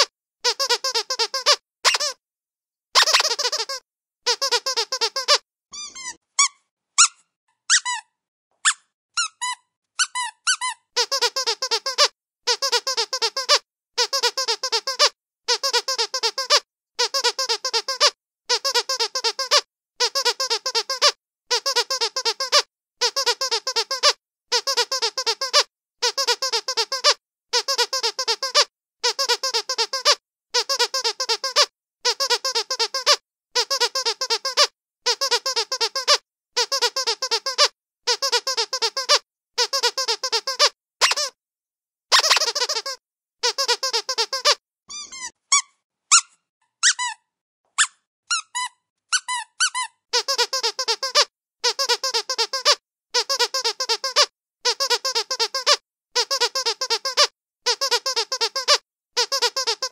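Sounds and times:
dog squeaky toy squeaking: 0.0s - 2.2s, 3.0s - 41.4s, 42.1s - 59.9s.

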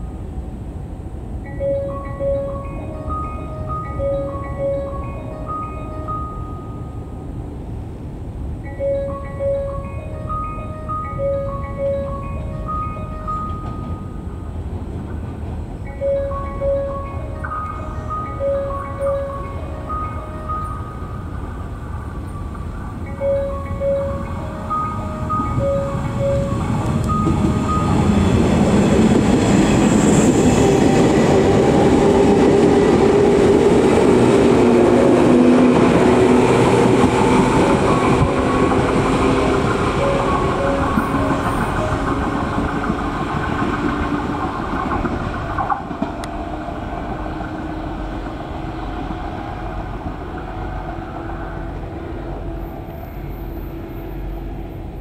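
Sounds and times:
train passing on track: 0.0s - 55.0s
station chime: 1.4s - 7.4s, 8.6s - 14.6s, 15.8s - 30.6s, 35.5s - 43.6s.

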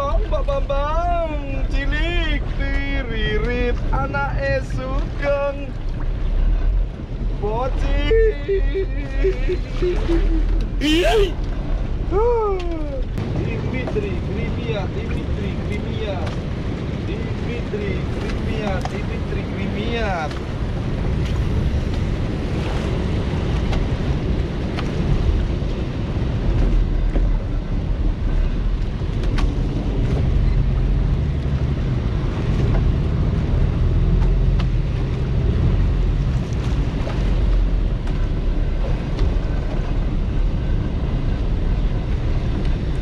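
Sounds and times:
choppy waves slapping boat: 0.0s - 43.0s
wind buffeting microphone: 0.0s - 43.0s.

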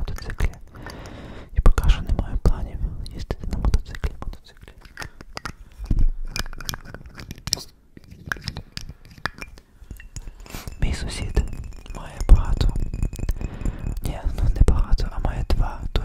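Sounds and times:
fingernails tapping on glass bottle: 8.3s - 15.4s.

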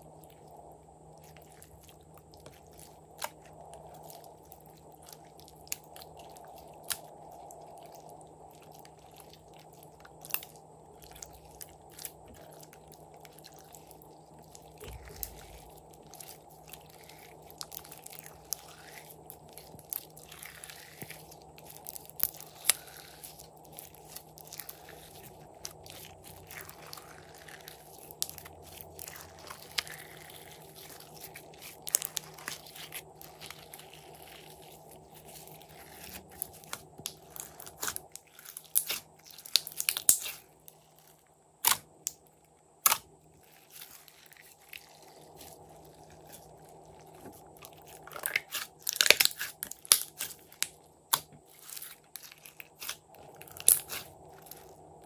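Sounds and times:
slime crackling and popping: 2.4s - 8.1s, 8.7s - 42.2s, 42.8s - 55.0s.

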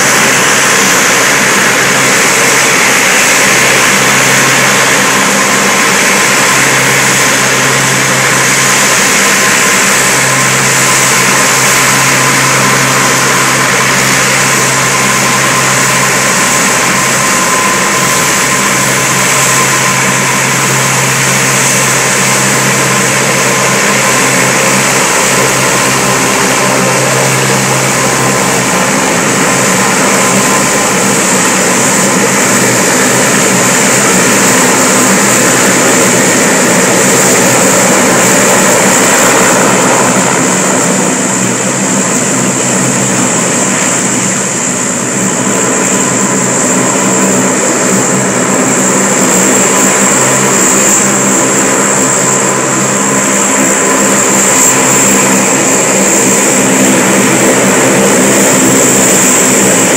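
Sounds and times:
turboprop engines droning: 0.0s - 59.9s.

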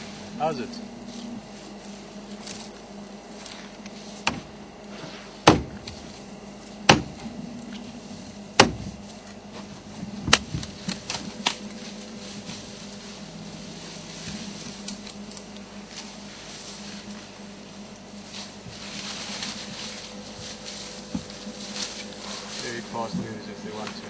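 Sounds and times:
steady low hum: 0.0s - 24.0s
branches cracking and snapping: 10.2s - 17.4s, 18.0s - 23.0s.

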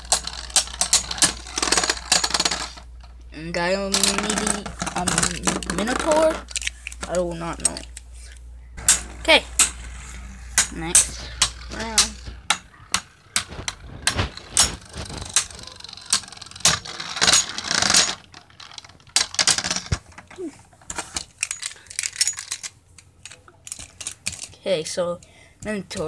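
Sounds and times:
spinning tops clacking: 0.0s - 2.9s, 8.8s - 20.0s.

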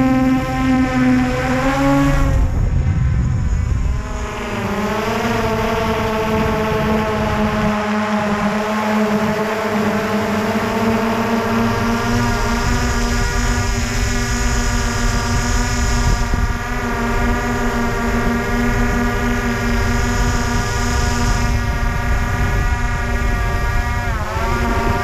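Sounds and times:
drone propellers whining: 0.0s - 25.0s
rushing rumble: 1.2s - 7.7s.

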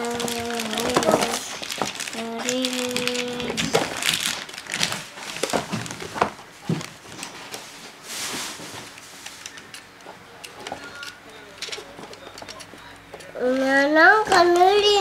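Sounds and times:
plastic packaging crinkling: 0.0s - 13.6s
plastic toy clicks and knocks: 10.4s - 13.7s.

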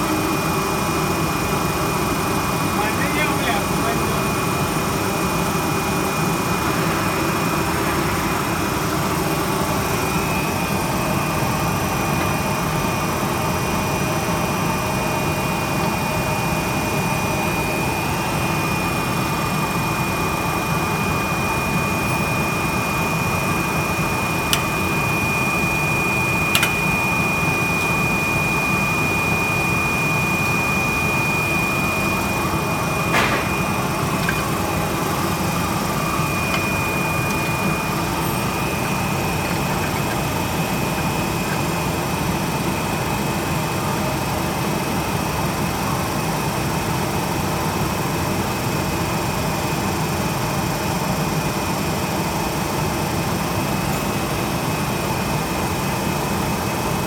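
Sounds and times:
factory machinery humming: 0.0s - 44.7s
high-pitched whine: 20.1s - 44.0s.

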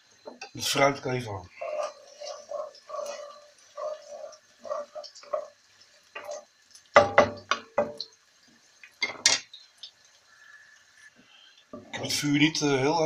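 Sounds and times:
spatula scraping wok: 1.6s - 5.5s
spatula knocking pan: 7.0s - 8.1s.

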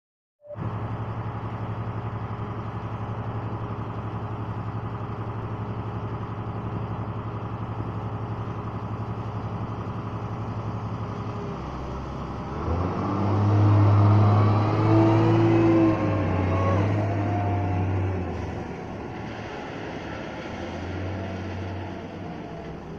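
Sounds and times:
diesel engine idling and revving: 0.5s - 22.9s
whining tones sliding: 12.6s - 19.0s.

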